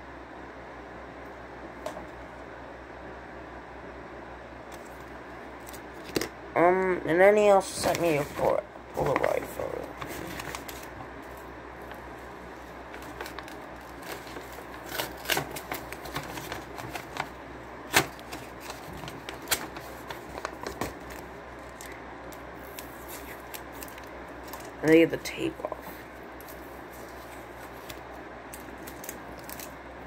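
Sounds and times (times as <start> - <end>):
paper and tape crinkling: 7.7 - 12.0, 12.6 - 25.1, 25.8 - 29.8.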